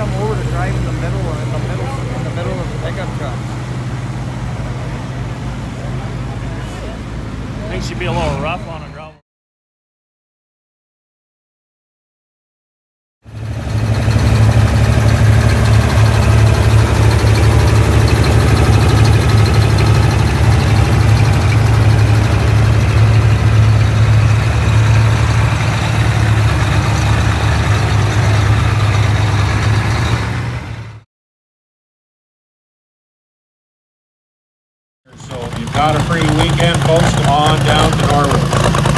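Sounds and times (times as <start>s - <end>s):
tractor engine idling: 0.0s - 9.2s, 13.3s - 31.0s, 35.1s - 38.9s.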